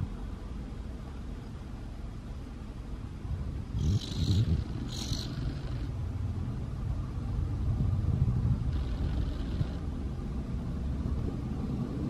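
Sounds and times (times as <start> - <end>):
fledgling bird begging call: 3.8 - 5.9.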